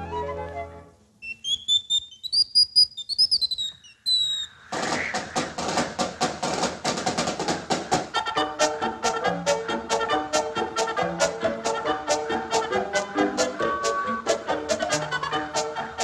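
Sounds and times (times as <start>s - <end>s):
high sliding whistle notes: 1.2s - 5.2s
fast orchestral cartoon music: 6.4s - 16.0s.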